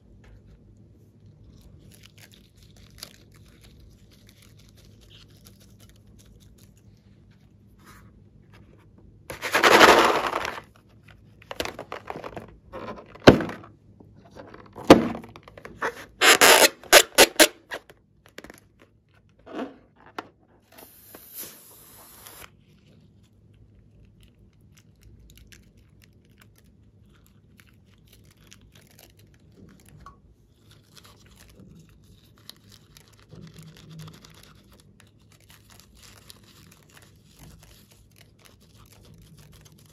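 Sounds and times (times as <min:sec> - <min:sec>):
balloons crinkling and scraping: 0:01.1 - 0:23.5, 0:25.2 - 0:39.9.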